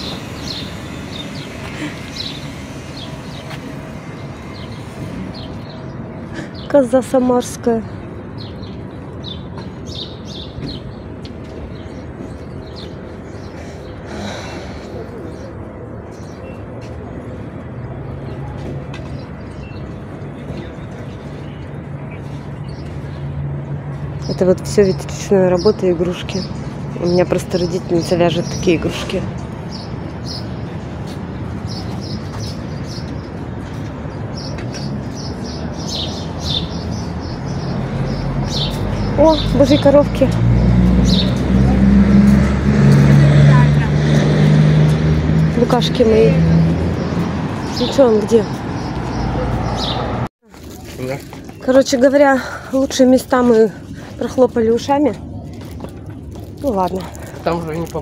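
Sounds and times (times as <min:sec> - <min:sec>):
small birds chirping: 0:00.0 - 0:11.0, 0:24.1 - 0:41.6, 0:45.5 - 0:58.0.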